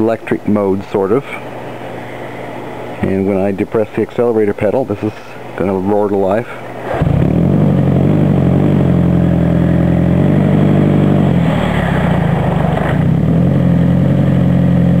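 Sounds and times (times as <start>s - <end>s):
car engine running: 7.0s - 15.0s.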